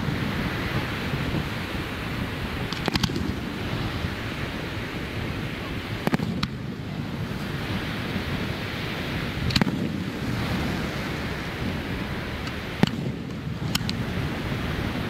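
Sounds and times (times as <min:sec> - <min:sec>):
surf: 0:00.0 - 0:15.0
wind on microphone: 0:00.0 - 0:15.0
distant firework shells bursting: 0:02.5 - 0:04.3, 0:05.8 - 0:08.2, 0:08.9 - 0:14.5.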